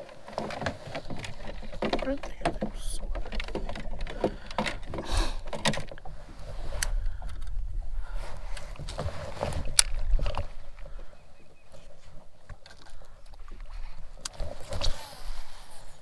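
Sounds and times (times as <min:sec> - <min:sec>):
rod and reel knocking against hull: 0:00.0 - 0:07.6.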